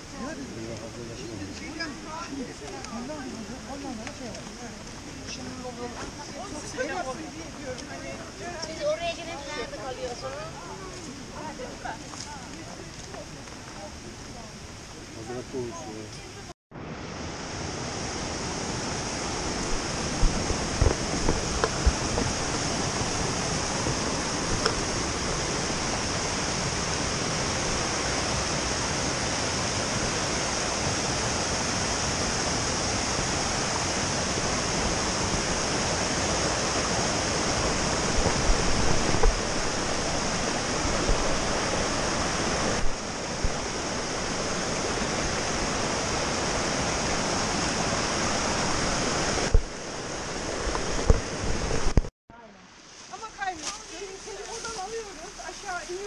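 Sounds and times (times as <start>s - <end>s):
waterfall rushing over rocks: 0.0s - 52.1s.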